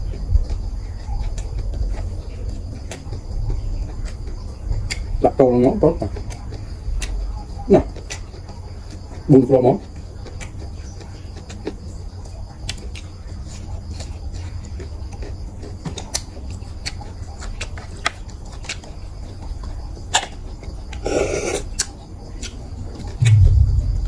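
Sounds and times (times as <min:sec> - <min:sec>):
clicks of fingers and snail shells: 0:04.9 - 0:05.2, 0:14.7 - 0:18.9, 0:20.1 - 0:23.2
low steady hum: 0:23.2 - 0:24.0.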